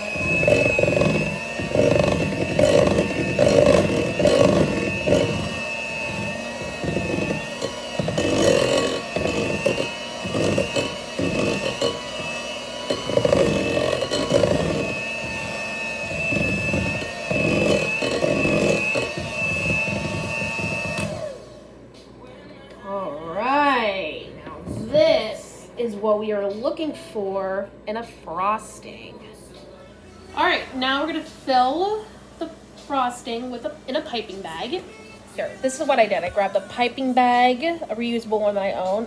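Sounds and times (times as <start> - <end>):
electric hand mixer whining: 0.0 - 21.8, 30.9 - 39.0.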